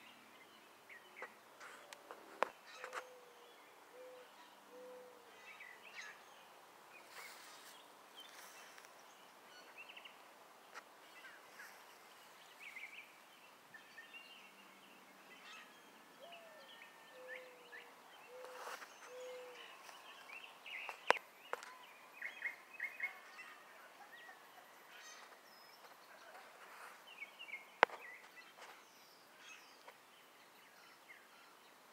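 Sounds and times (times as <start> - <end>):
birds chirping and singing: 2.5 - 6.3, 15.4 - 29.9.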